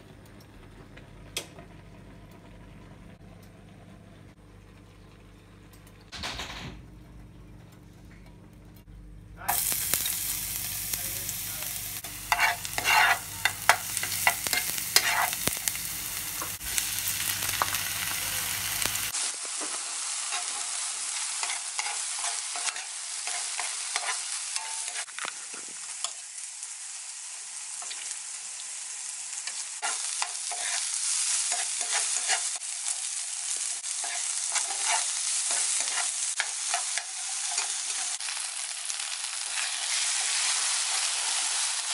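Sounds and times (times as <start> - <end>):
food sizzling in hot oil: 9.5 - 41.9
metal spoon scraping a pan: 12.0 - 15.6, 21.4 - 25.2, 29.5 - 30.9, 31.5 - 32.6, 34.0 - 38.2.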